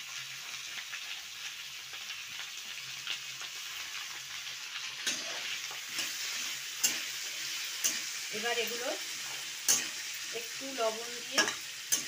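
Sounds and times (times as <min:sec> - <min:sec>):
vegetables sizzling in oil: 0:00.0 - 0:12.0
spatula scraping a metal pan: 0:05.0 - 0:08.2, 0:09.1 - 0:10.3.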